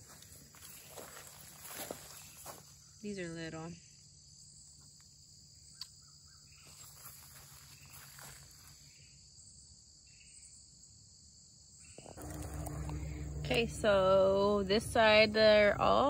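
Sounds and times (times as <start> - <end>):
rustling of vines underfoot: 0.0 - 2.9, 6.5 - 9.0
insects droning: 0.0 - 16.0.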